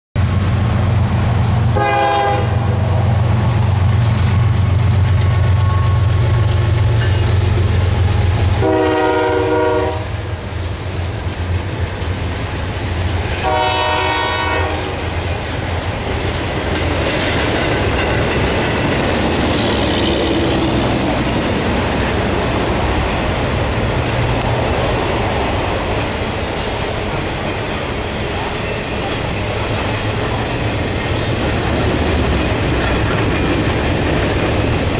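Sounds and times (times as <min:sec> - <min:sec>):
locomotive engine drone: 0:00.2 - 0:34.9
rail cars clattering on tracks: 0:00.2 - 0:34.9
train air horn blasts: 0:01.7 - 0:03.0, 0:08.4 - 0:10.4, 0:13.4 - 0:15.2.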